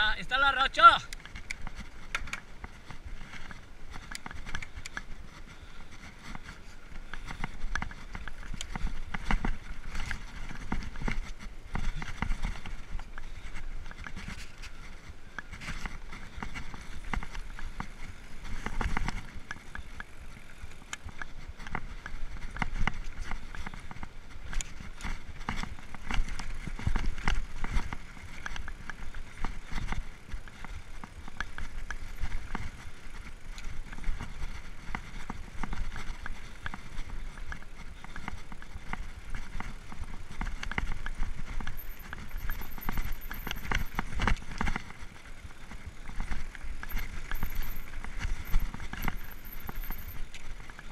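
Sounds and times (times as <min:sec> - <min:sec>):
bike tyres rumbling on dirt: 0:00.0 - 0:50.9
bike rattling and knocking: 0:00.3 - 0:50.9.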